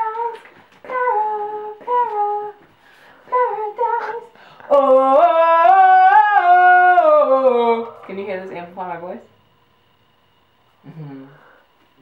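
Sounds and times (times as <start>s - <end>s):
girl singing wordless phrases: 0.0s - 2.7s, 3.3s - 8.2s
low held hum: 0.0s - 12.0s.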